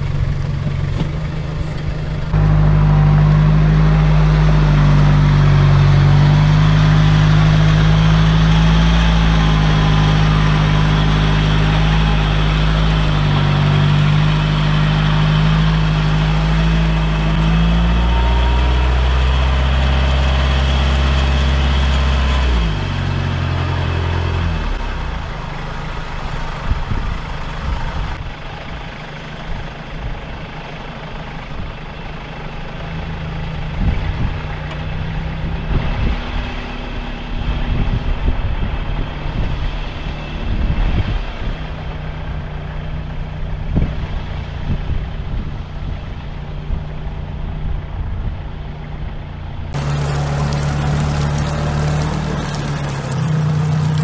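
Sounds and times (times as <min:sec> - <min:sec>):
diesel engine revving: 0:00.0 - 0:28.2, 0:49.8 - 0:54.0
steady water hiss: 0:49.8 - 0:54.0.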